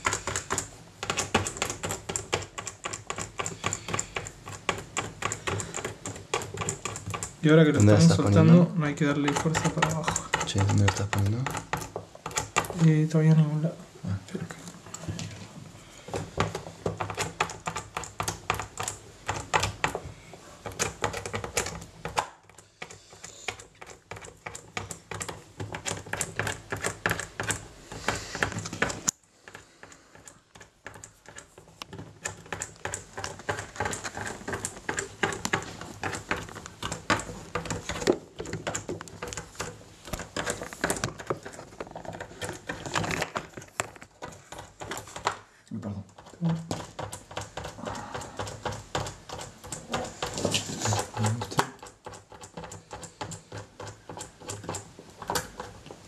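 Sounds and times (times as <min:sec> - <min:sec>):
clicking and tapping of knobs: 0:09.0 - 0:12.8, 0:46.1 - 0:56.0.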